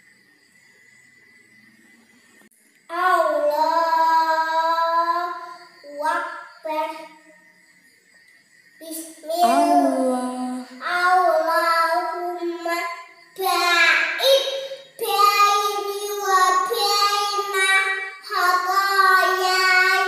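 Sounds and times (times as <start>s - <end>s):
girl chanting prayer: 2.9s - 7.3s, 8.8s - 20.0s.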